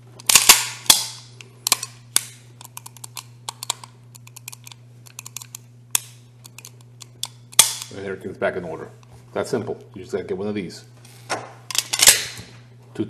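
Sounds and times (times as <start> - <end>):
faint steady hum: 0.0 - 13.0
pistol slide and hammer snaps: 7.2 - 7.9.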